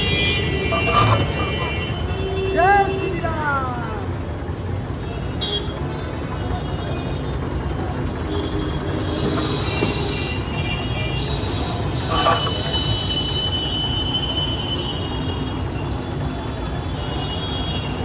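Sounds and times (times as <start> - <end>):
traffic: 0.0 - 18.0
crowd: 2.6 - 12.4, 13.8 - 18.0.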